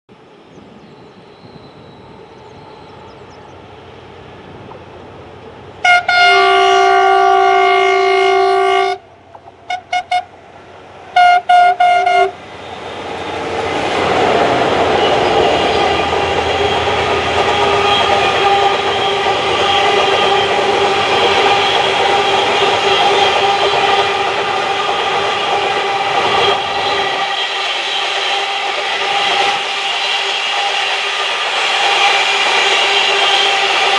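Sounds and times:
locomotive horn blasts: 5.8 - 9.0, 9.6 - 10.3, 11.2 - 12.4, 15.2 - 28.6, 31.8 - 33.9
freight wagons rumbling past: 12.3 - 27.2.

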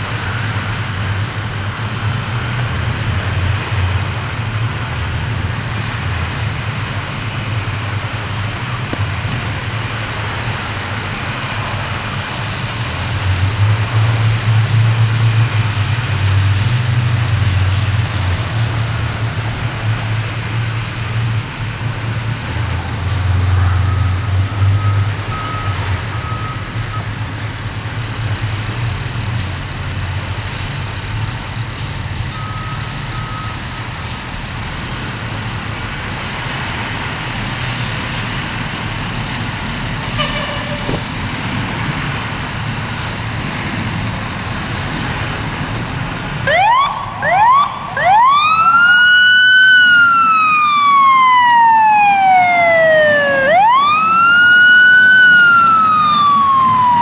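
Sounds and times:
fire engine rumbling: 0.0 - 57.0
siren wailing: 46.5 - 57.0.

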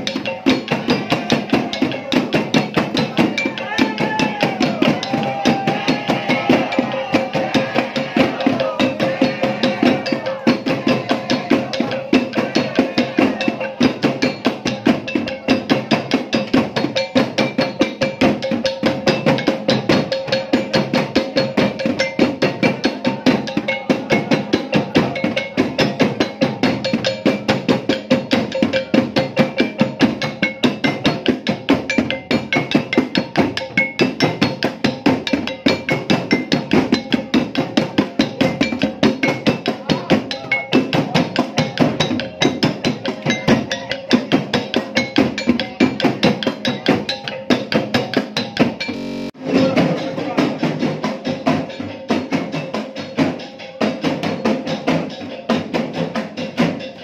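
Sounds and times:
voices: 0.0 - 55.5
wooden xylophone percussion music: 0.0 - 57.0
steady ringing tone: 4.7 - 50.2.

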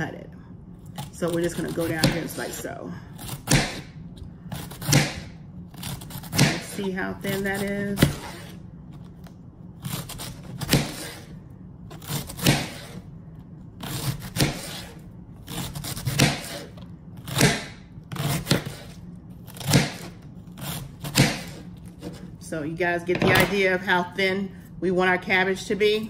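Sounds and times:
knife slicing cabbage on board: 4.5 - 8.6, 9.8 - 11.3, 11.9 - 13.0, 13.8 - 22.3.

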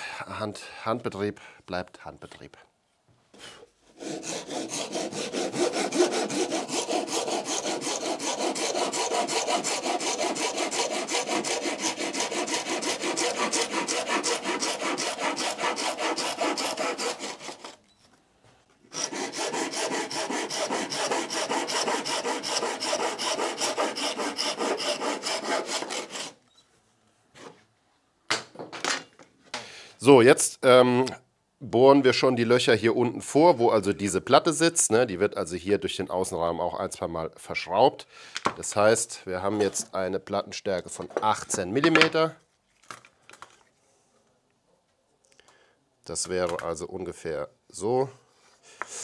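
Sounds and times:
hand saw cutting wood: 3.9 - 17.8, 18.9 - 26.4.

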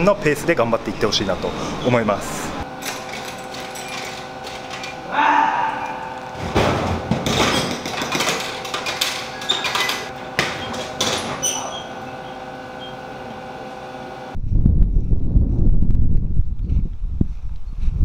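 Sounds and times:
vending machine hum: 0.0 - 14.4
wind rumble on microphone: 14.4 - 18.0.

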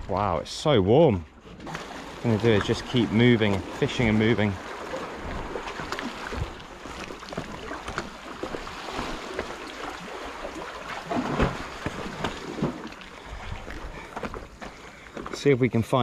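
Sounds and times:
waves lapping against rocks: 1.5 - 15.6.

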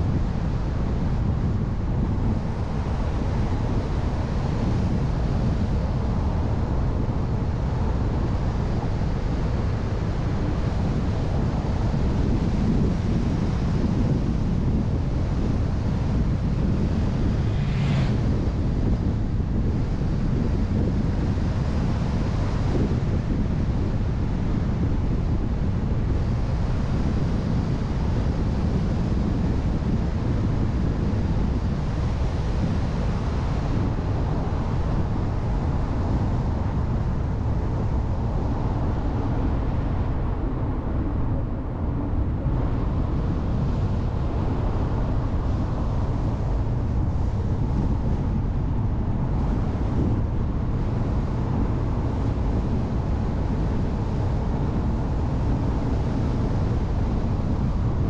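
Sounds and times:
wind noise on microphone: 0.0 - 58.0
car road noise: 15.2 - 19.9.

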